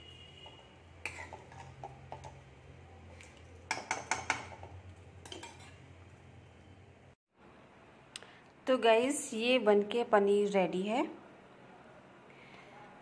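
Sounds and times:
steel spoon clinking on metal pan: 3.7s - 5.8s.

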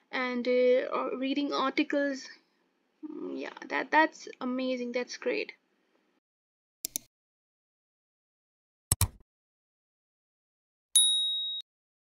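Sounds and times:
mouse clicks: 6.9s - 7.1s, 8.9s - 9.2s
short high bell ding: 11.0s - 11.6s.

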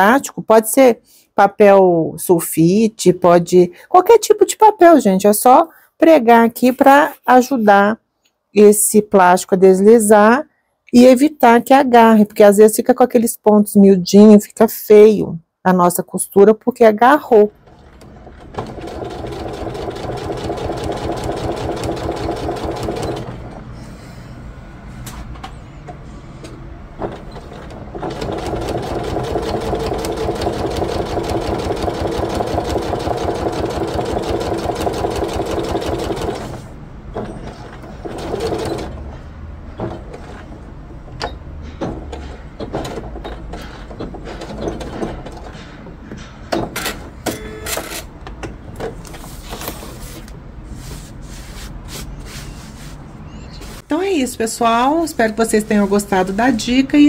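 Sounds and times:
sewing machine stitching: 17.6s - 23.5s, 27.1s - 36.7s, 37.4s - 39.0s.

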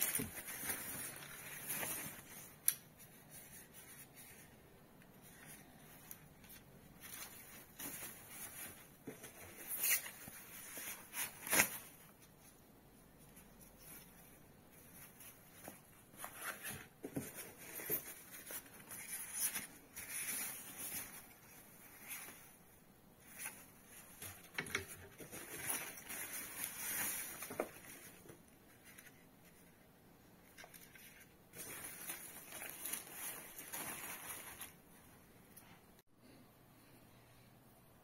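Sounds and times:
plastic wrapping rustling: 0.0s - 2.6s, 23.2s - 29.6s, 30.5s - 35.1s.

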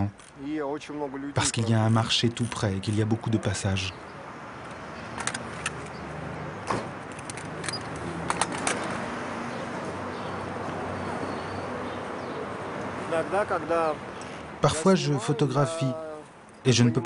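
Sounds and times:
traffic hum: 0.0s - 17.0s
sharp clicks and knocks: 4.7s - 6.0s, 6.6s - 9.0s.

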